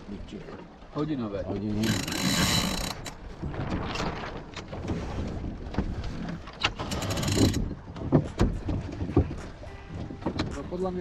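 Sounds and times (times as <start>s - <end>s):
water washing along hull: 0.0s - 11.0s
rigging knocks and clicks: 1.7s - 10.8s
wind noise: 1.9s - 11.0s.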